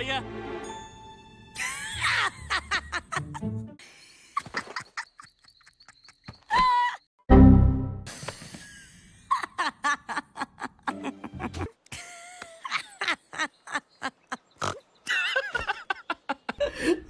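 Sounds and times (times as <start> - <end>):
woman giggling: 1.6 - 3.4, 4.4 - 7.0, 8.7 - 14.5, 15.1 - 17.0
man laughing: 1.6 - 3.5, 8.6 - 14.4.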